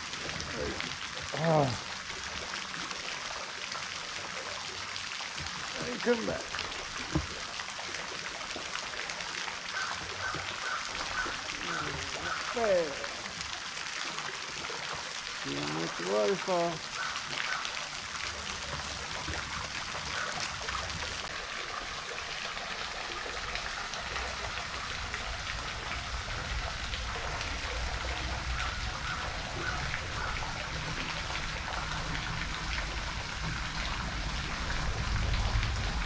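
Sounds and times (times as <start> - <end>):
water pattering and trickling: 0.0 - 36.0
low rumble: 32.1 - 36.0.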